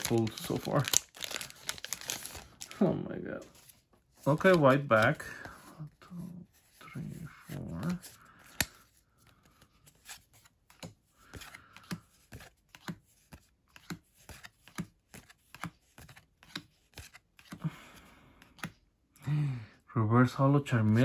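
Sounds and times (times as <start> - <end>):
trading cards clicking and swishing: 7.5 - 17.6, 18.4 - 18.8.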